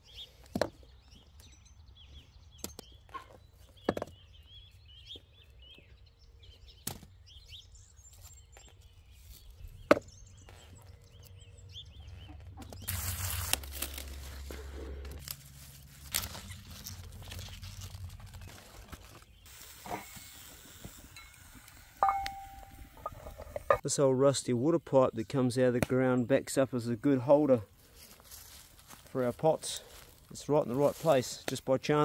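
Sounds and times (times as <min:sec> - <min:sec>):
birds chirping faintly: 0:00.0 - 0:14.3
leaves rustling: 0:12.6 - 0:23.4, 0:27.7 - 0:31.6
trowel digging in soil: 0:12.7 - 0:21.4.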